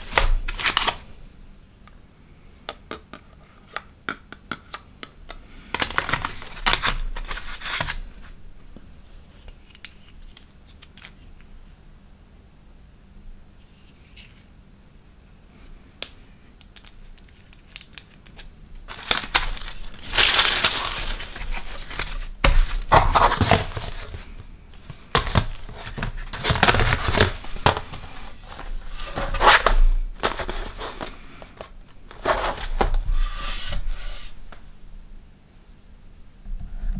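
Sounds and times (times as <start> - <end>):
cardboard box rustling and scraping: 18.9 - 34.4.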